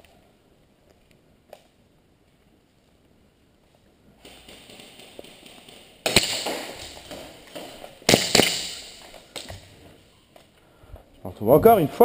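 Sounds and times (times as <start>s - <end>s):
pistol shots echoing in hall: 6.0s - 7.3s, 8.0s - 9.2s.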